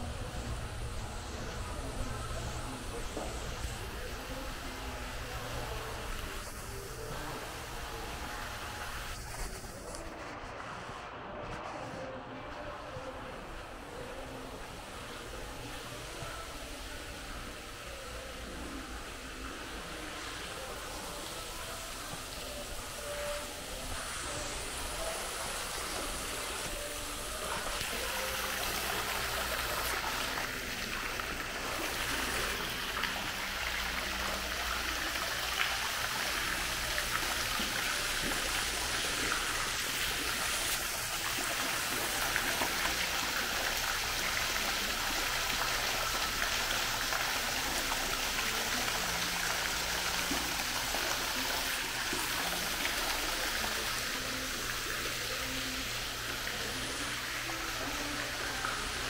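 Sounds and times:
fountain splashing water: 0:18.0 - 0:59.0.

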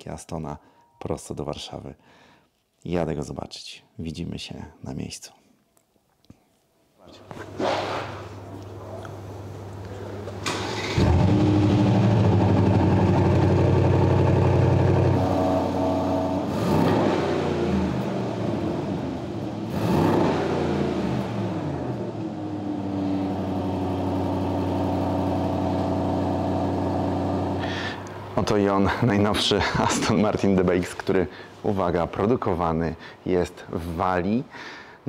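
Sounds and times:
car engine starting and idling: 0:09.2 - 0:28.4
engine rev blips: 0:10.5 - 0:27.7.

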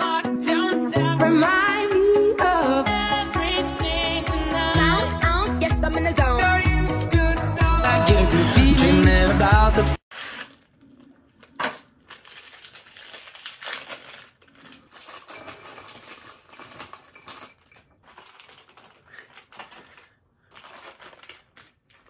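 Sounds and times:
plastic wrapping crinkling: 0:10.1 - 0:22.0.

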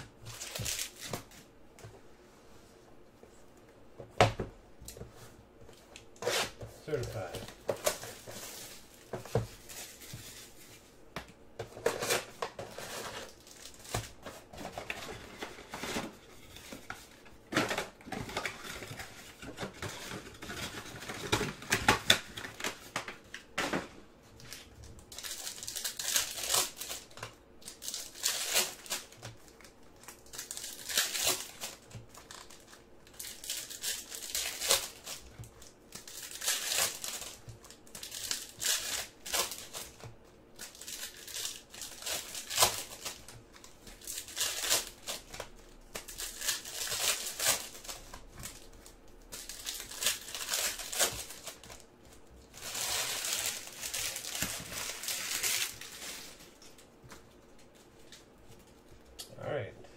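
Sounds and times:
foil packs tearing and crinkling: 0:11.7 - 0:16.8, 0:24.5 - 0:51.9, 0:52.5 - 0:56.7.

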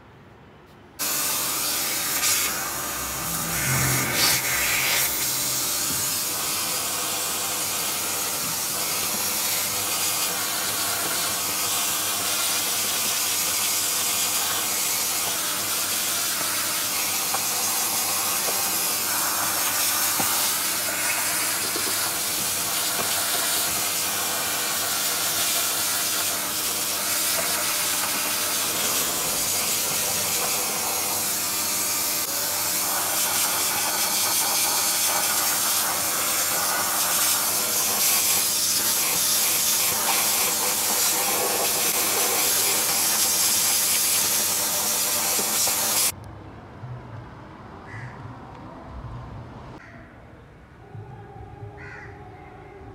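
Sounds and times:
vacuum cleaner sucking air: 0:01.0 - 0:46.2.

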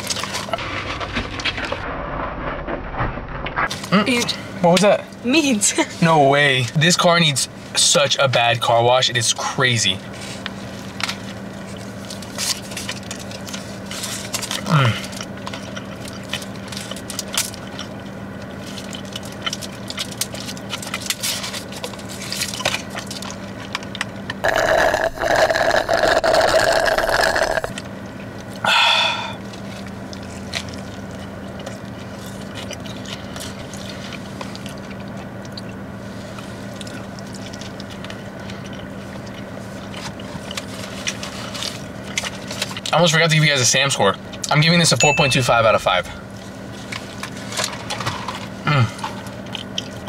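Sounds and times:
steady low hum: 0:00.0 - 0:50.0
person chewing food: 0:10.4 - 0:42.9, 0:46.3 - 0:50.0
slurping soda through a straw: 0:24.4 - 0:27.7.

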